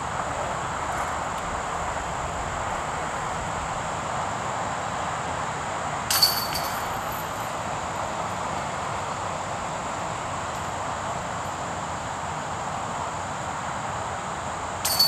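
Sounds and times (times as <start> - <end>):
steady background noise: 0.0 - 15.0
disc hitting metal chains: 6.1 - 7.4.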